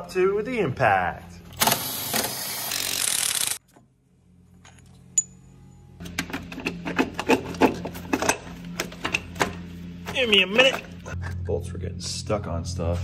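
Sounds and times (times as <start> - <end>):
impact driver running: 1.6 - 3.6.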